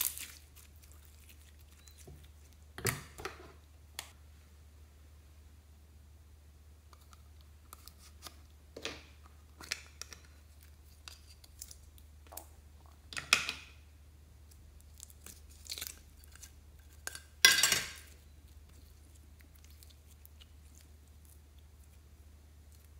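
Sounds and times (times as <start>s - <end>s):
slime squelching: 0.0s - 2.8s, 18.1s - 22.9s.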